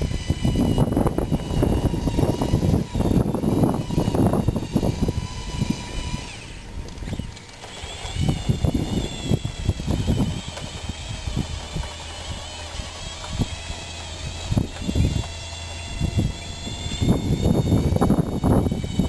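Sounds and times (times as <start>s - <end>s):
electric drive motors whining: 0.0s - 19.0s.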